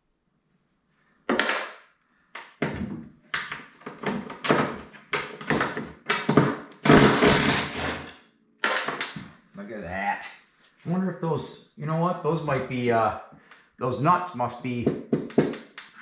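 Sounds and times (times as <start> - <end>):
impact driver hammering: 6.2 - 9.1.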